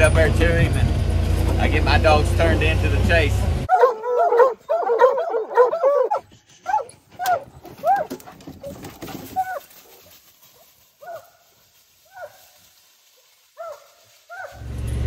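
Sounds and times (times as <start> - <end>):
hounds baying: 3.7 - 14.7
rustling in dry leaves: 8.6 - 15.0.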